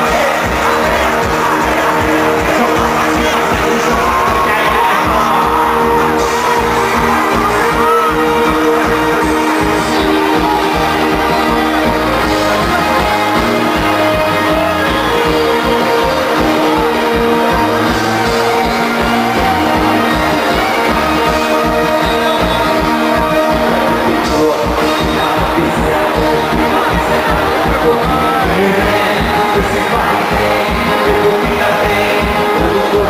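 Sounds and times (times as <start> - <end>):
bass guitar: 0.0 - 33.0
drums: 0.0 - 33.0
electric guitar: 0.0 - 33.0
live band playing: 0.0 - 33.0.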